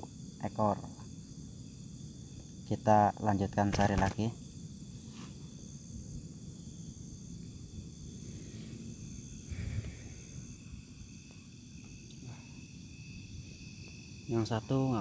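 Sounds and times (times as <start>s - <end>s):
crickets chirring: 0.0s - 15.0s.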